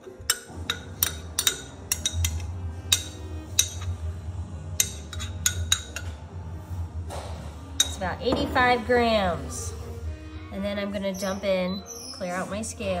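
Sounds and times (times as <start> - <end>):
spoon clinking against glass jar: 0.2 - 3.9.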